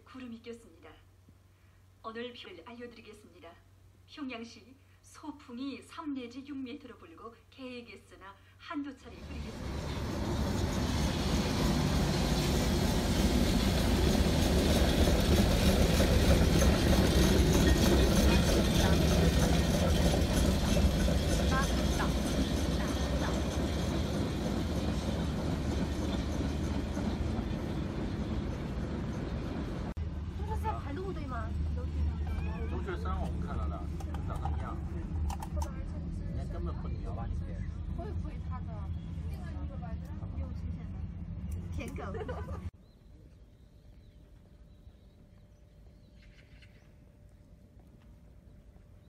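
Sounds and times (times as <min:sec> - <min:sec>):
voices: 0:04.2 - 0:12.8, 0:15.7 - 0:28.0, 0:30.2 - 0:42.8
tram rumbling on rails: 0:09.0 - 0:42.8
traffic: 0:09.1 - 0:36.3.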